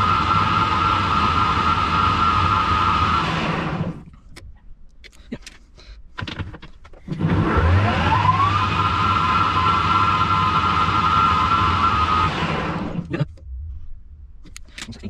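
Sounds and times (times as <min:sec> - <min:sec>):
lathe whining: 0:00.0 - 0:04.0, 0:07.1 - 0:13.1.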